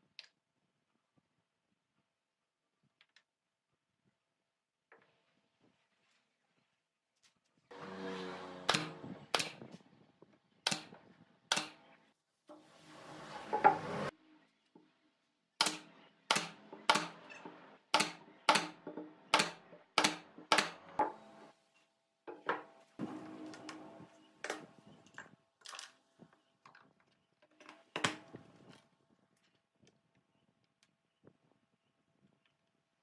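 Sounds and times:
nail gun shots: 8.7s - 9.6s, 10.7s - 11.8s, 15.6s - 17.2s, 18.0s - 21.0s.

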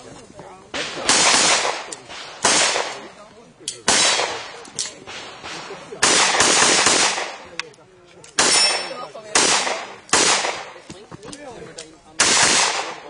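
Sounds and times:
pistol shots in rapid strings: 0.8s - 3.1s, 3.9s - 7.4s, 8.4s - 10.8s, 12.2s - 13.0s.

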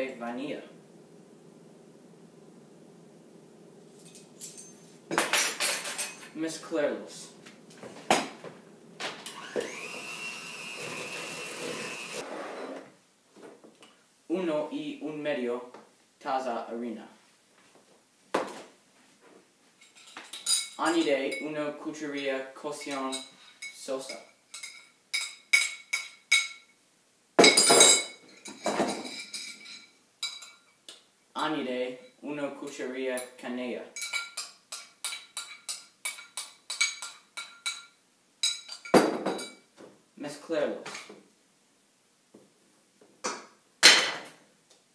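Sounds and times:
electric mixer whining: 9.2s - 12.3s
spoon clinking ceramic bowl: 22.8s - 26.7s, 27.5s - 30.8s, 34.0s - 39.7s.

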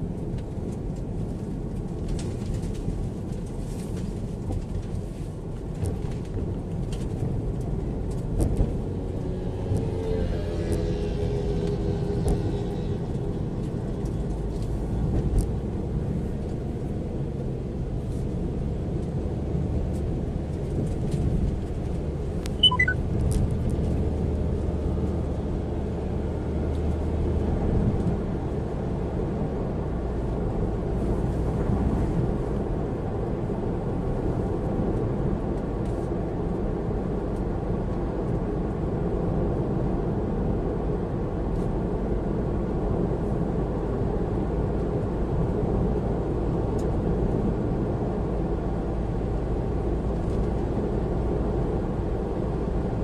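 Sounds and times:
car road and engine rumble: 0.0s - 53.0s
short electronic beep: 22.6s - 23.0s.

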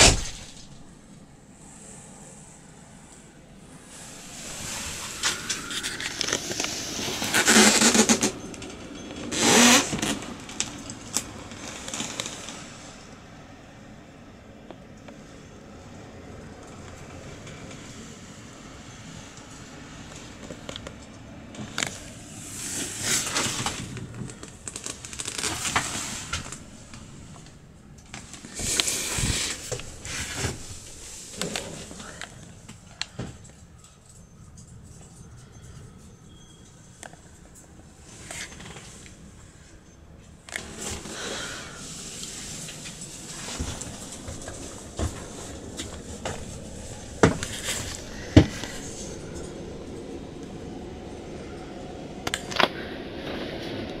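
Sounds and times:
low background noise: 0.0s - 54.0s
low steady rumble: 10.0s - 54.0s
rustling handling noise: 41.8s - 50.0s.

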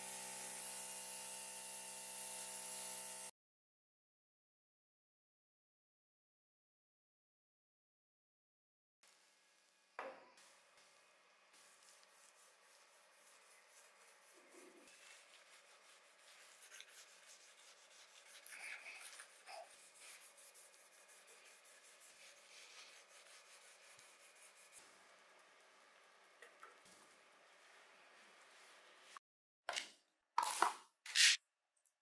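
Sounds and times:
sanding pad rubbing plastic: 11.6s - 24.8s.

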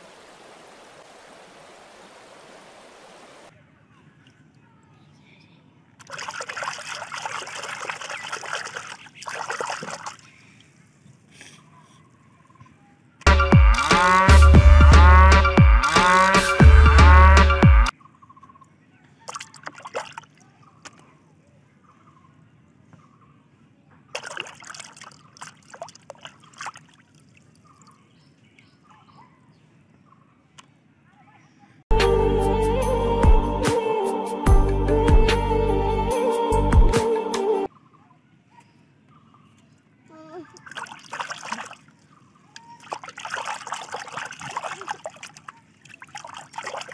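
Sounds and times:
hand splashing in soapy water: 6.0s - 10.3s, 24.2s - 27.1s, 40.6s - 41.9s, 42.6s - 46.9s.

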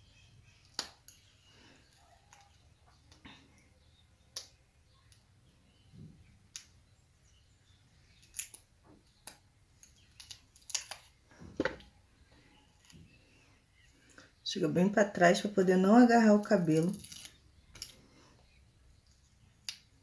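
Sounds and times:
paper backing peeling crinkles: 16.7s - 18.0s.

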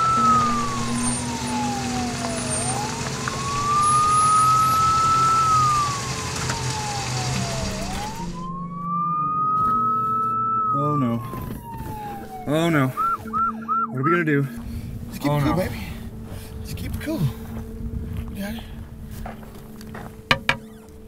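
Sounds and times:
police siren wailing: 0.0s - 16.4s.

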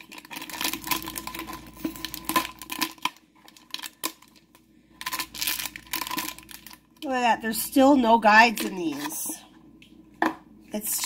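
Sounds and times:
foil packaging crinkling: 0.0s - 7.7s.

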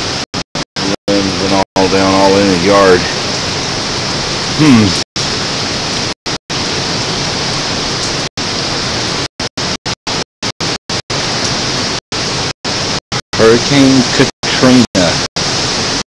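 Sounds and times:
hurricane wind and rain: 0.0s - 0.2s, 0.8s - 16.0s.

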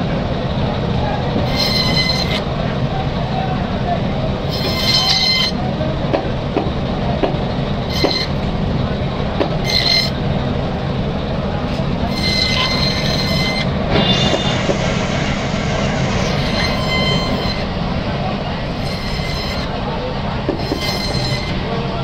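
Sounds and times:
saw blade squealing: 1.4s - 2.5s, 4.4s - 5.6s, 7.9s - 8.4s, 9.6s - 10.2s, 12.0s - 14.7s, 16.2s - 17.8s, 18.7s - 19.8s, 20.6s - 21.7s
band saw humming: 1.4s - 3.1s, 3.7s - 22.0s.

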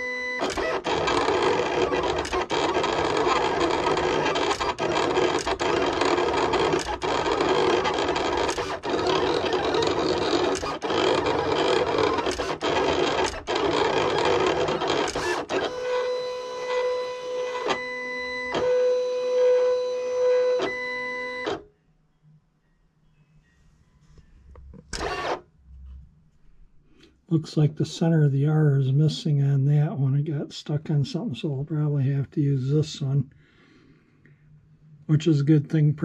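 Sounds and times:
vinyl cutter motors whirring: 0.0s - 21.6s, 25.0s - 25.4s.

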